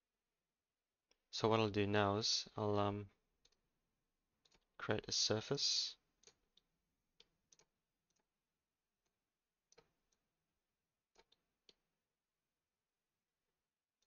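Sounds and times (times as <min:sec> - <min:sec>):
computer mouse clicks: 0:11.1 - 0:11.8.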